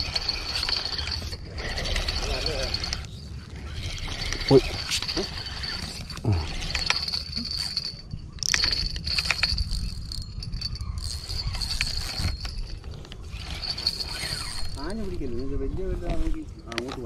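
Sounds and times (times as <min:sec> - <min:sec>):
fishing reel clicks and knocks: 0:03.8 - 0:15.2.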